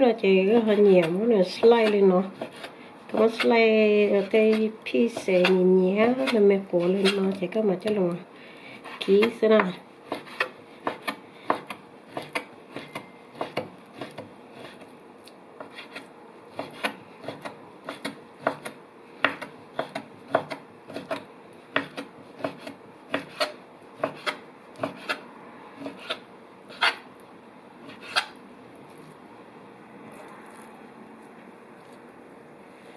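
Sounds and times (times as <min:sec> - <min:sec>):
cleaver chopping on wooden board: 0:09.0 - 0:14.8, 0:16.6 - 0:25.2.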